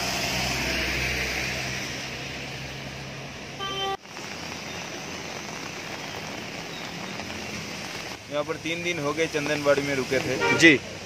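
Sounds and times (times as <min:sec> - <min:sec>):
tyres hissing on wet road: 0:00.0 - 0:11.0
car horn toot: 0:03.6 - 0:04.0, 0:10.4 - 0:10.8.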